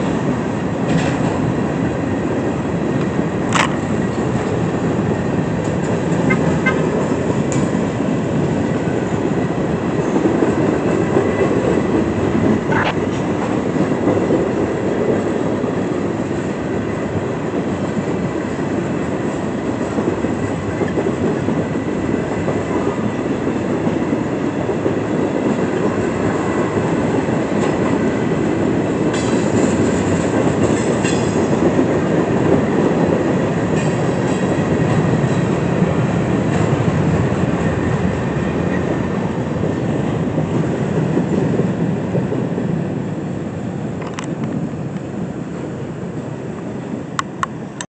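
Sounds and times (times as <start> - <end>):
steel wheels rolling on rails: 0.0 - 47.8.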